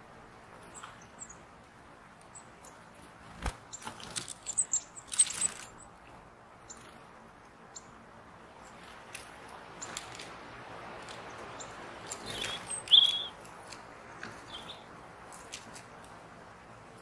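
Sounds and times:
birds chirping: 0.6 - 3.0, 3.6 - 9.1, 9.7 - 10.1, 10.8 - 15.0
wing flutters: 3.2 - 5.8, 12.0 - 13.3.

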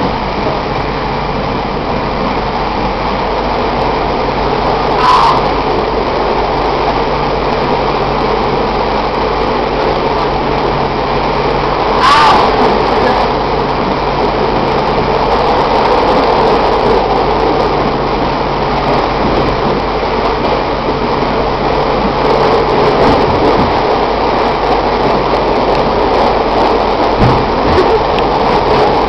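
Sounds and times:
train wheels rumbling on rails: 18.6 - 29.0.

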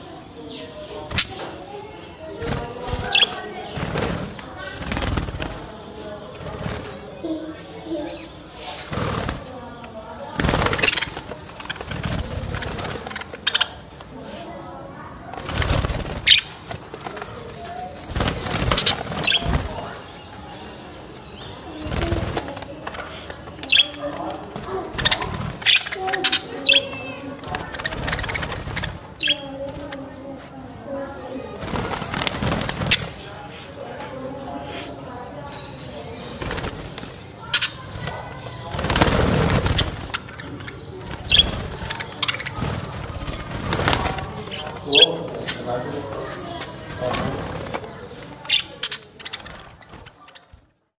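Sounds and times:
budgerigars flapping wings: 2.3 - 7.4, 8.1 - 14.4, 15.2 - 30.7, 31.3 - 33.4, 36.2 - 50.8
budgerigars chirping: 2.8 - 3.5, 10.4 - 13.9, 16.2 - 16.6, 23.1 - 30.0, 37.4 - 46.1.

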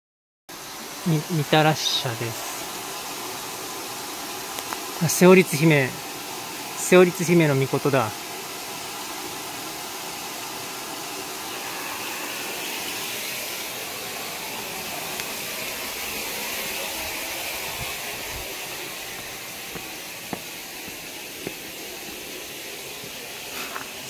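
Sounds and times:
running water rushing: 0.5 - 24.0.

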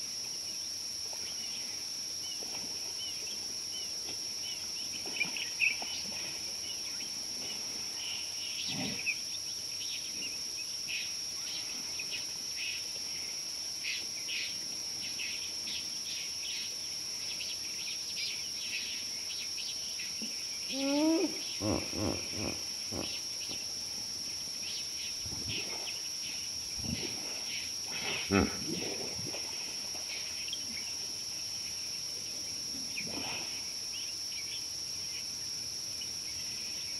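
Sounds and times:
insects droning: 0.0 - 36.9
animal squealing and grunting: 21.2 - 23.2, 28.0 - 28.8.

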